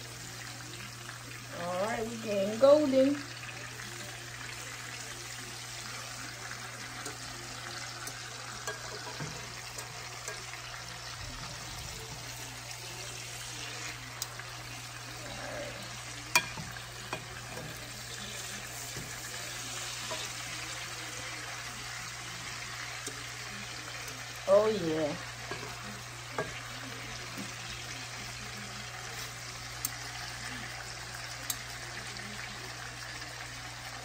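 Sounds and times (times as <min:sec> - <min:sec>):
chicken sizzling in a pan: 0:00.0 - 0:34.0
metal tongs clicking on pan: 0:07.0 - 0:10.7, 0:16.3 - 0:19.2, 0:23.0 - 0:23.2, 0:31.4 - 0:31.7.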